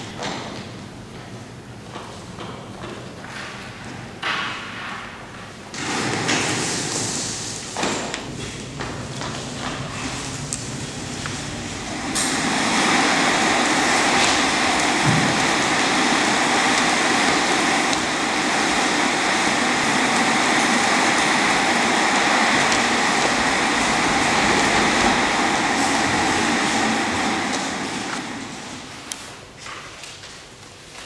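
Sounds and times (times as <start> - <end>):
loud rushing noise: 5.8 - 29.3.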